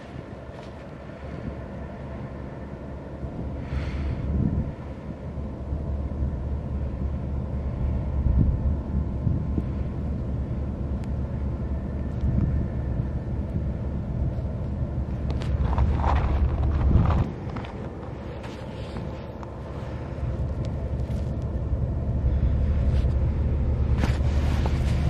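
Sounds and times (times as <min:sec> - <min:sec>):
faint mechanical hum: 0:00.0 - 0:25.0
wind buffeting microphone: 0:00.0 - 0:25.0.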